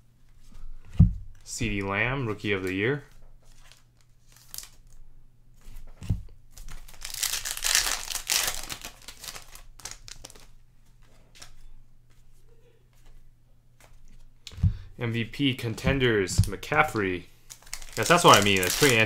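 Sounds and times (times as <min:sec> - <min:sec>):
wrapper tearing and crinkling: 0:03.6 - 0:04.9, 0:06.6 - 0:10.5, 0:16.8 - 0:19.0
cards clicking being handled: 0:06.6 - 0:10.5, 0:16.4 - 0:19.0.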